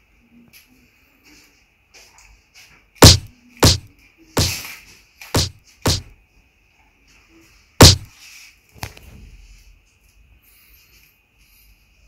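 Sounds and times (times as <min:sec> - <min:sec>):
sharp knocks: 0:03.0 - 0:04.6, 0:05.4 - 0:06.1, 0:07.8 - 0:08.1.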